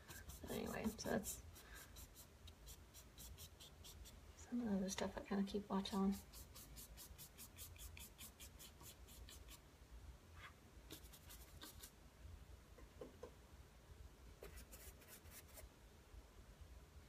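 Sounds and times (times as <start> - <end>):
paintbrush scrubbing: 0.0 - 4.2, 6.0 - 9.6, 10.9 - 11.9.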